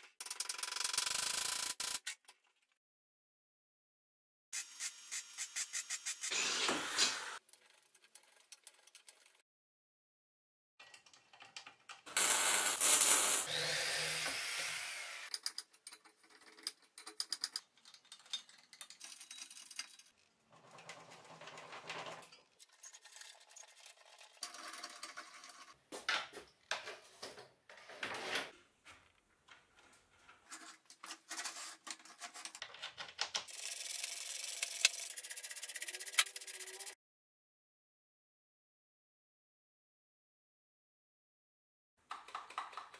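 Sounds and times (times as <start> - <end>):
small power tool running: 12.1 - 15.3.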